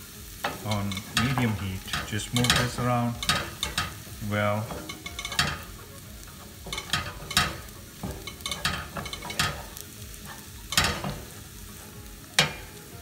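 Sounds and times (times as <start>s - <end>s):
frying sizzle: 0.0s - 13.0s
spatula scraping frying pan: 0.0s - 13.0s.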